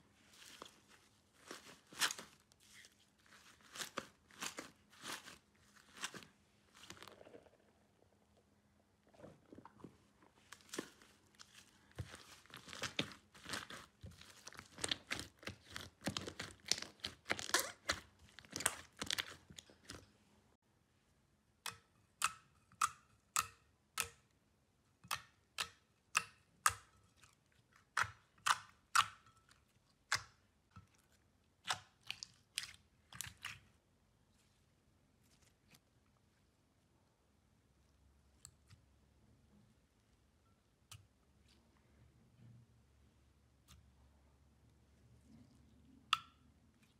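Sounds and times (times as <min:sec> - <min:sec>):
hands squishing foamy slime: 0:00.4 - 0:07.3, 0:10.4 - 0:20.0.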